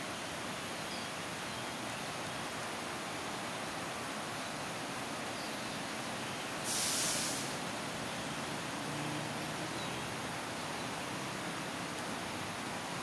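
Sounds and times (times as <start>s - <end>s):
steady outdoor hiss: 0.0s - 13.0s
short sharp hiss: 6.6s - 7.6s.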